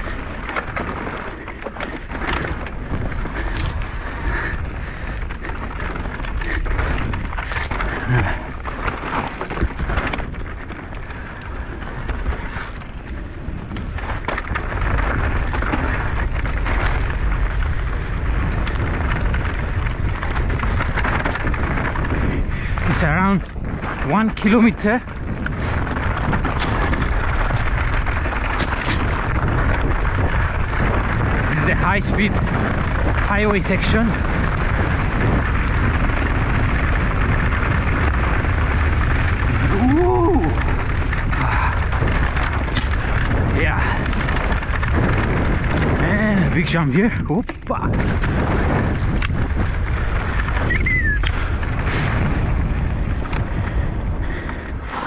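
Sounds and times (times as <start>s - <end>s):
bike rattling: 0.0s - 55.0s
tyres crunching on gravel: 0.0s - 55.0s
wind buffeting microphone: 0.0s - 55.0s
high squeal: 50.6s - 51.2s.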